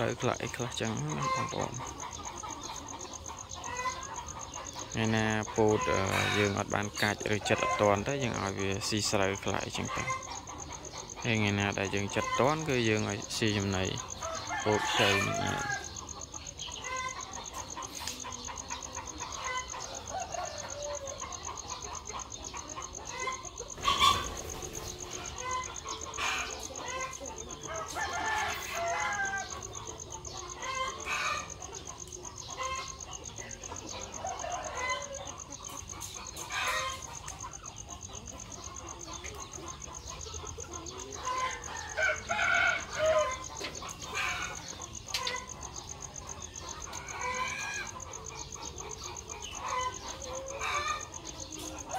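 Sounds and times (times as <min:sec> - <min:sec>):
hens clucking: 0:00.0 - 0:51.9
rooster crowing: 0:13.8 - 0:16.2, 0:18.4 - 0:21.7, 0:25.0 - 0:31.6, 0:33.8 - 0:35.6, 0:41.2 - 0:51.9.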